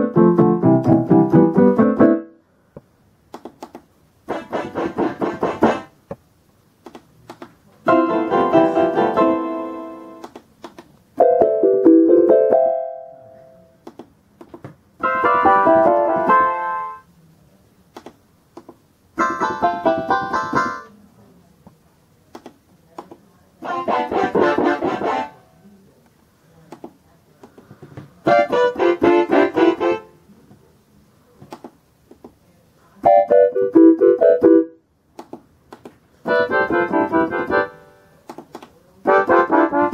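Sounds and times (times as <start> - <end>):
electronic keyboard phrases: 7.8 - 10.2, 19.2 - 20.9, 23.6 - 25.7, 28.2 - 30.2, 33.0 - 34.8, 36.2 - 38.1.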